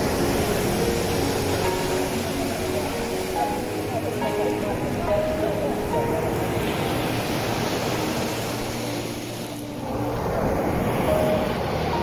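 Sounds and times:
sea waves breaking on shore: 0:00.0 - 0:12.0.

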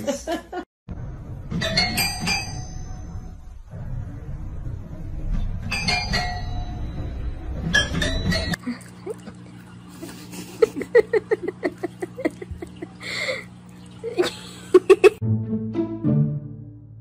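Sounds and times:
cat lapping from bowl: 0:08.6 - 0:14.4.

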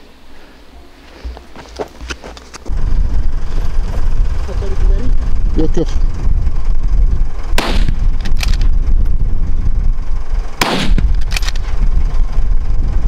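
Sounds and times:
steady low rumble: 0:02.6 - 0:13.0
gunshots with echo: 0:07.6 - 0:08.6, 0:10.6 - 0:11.5.

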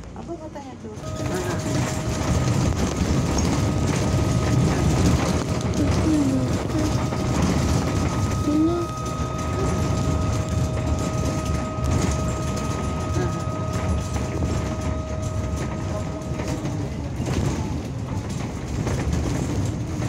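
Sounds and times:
bus diesel engine rumble: 0:00.0 - 0:20.0
steady high whine: 0:01.0 - 0:17.0.

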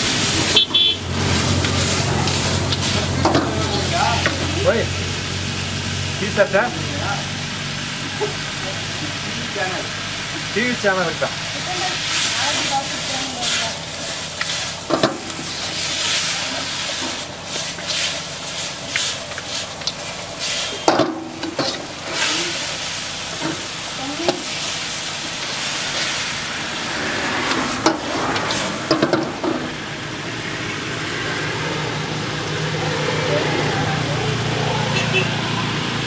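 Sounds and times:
food sizzling in a wok: 0:00.0 - 0:36.0
metal ladle scraping and clanking: 0:14.0 - 0:22.7.

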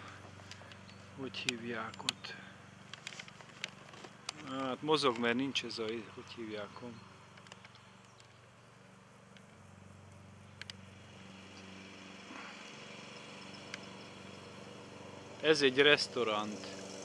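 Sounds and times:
distant lawn mower engine hum: 0:00.0 - 0:17.0
faint ticks: 0:07.3 - 0:10.8, 0:13.4 - 0:14.1.

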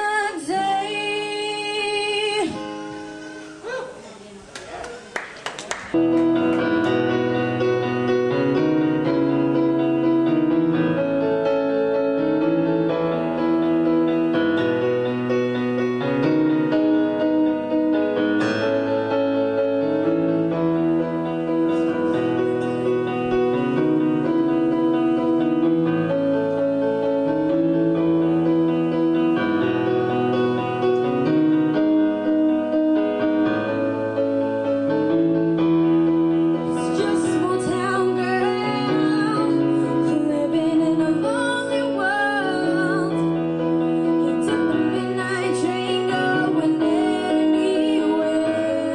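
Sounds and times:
young female voice singing: 0:00.0 - 0:02.7, 0:36.8 - 0:43.2, 0:44.2 - 0:48.9
electronic keyboard piano chords: 0:05.9 - 0:48.9.

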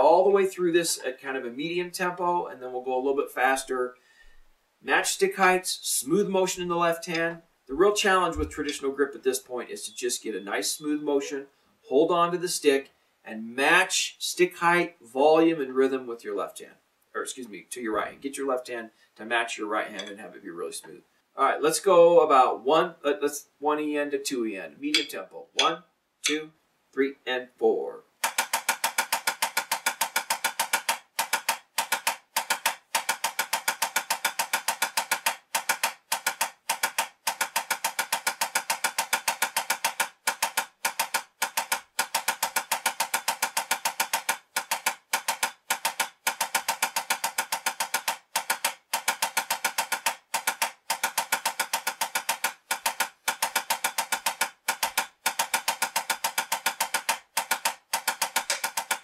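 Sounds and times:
drumsticks on a practice pad: 0:06.5 - 0:08.8, 0:24.9 - 0:26.4, 0:28.2 - 0:59.0.

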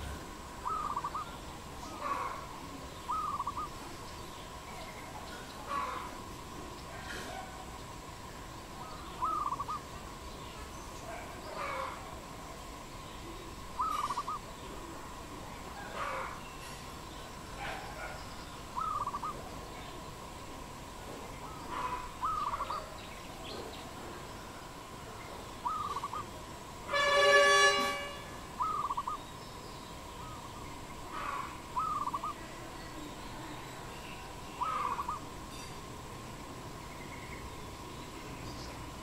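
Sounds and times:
dove cooing: 0:00.0 - 0:02.5, 0:03.1 - 0:03.8, 0:09.2 - 0:09.9, 0:13.7 - 0:15.0, 0:18.8 - 0:19.5, 0:21.4 - 0:23.0, 0:25.6 - 0:26.4, 0:28.6 - 0:29.2, 0:30.2 - 0:32.5, 0:34.6 - 0:35.4
loud honk: 0:26.9 - 0:28.4.

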